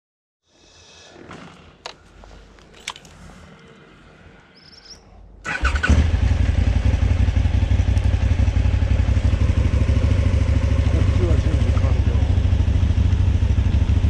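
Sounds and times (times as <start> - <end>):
motorcycle engine starting and idling: 5.4 - 14.0.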